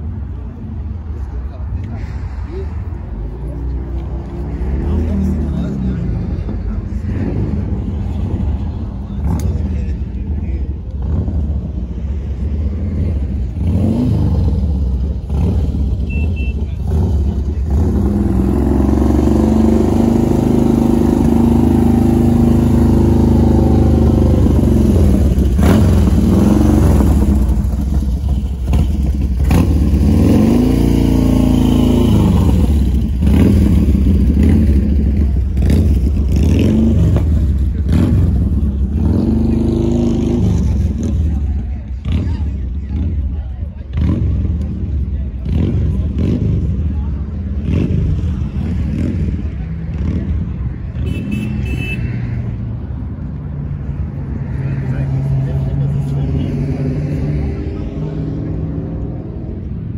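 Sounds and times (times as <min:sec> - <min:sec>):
car engine revving: 0:16.7 - 0:42.8.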